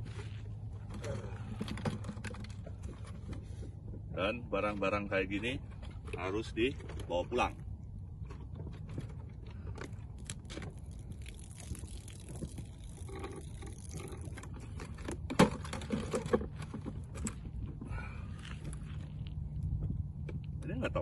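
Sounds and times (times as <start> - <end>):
plastic jugs crinkling and knocking: 0.0 - 20.6
steady low rumble: 0.0 - 21.0
water sloshing: 5.6 - 19.2.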